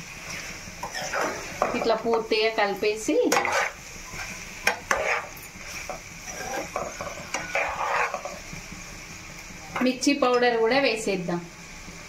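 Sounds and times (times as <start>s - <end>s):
light sizzle of frying: 0.0s - 12.0s
metal spatula scraping frying pan: 0.3s - 2.2s, 2.9s - 8.5s.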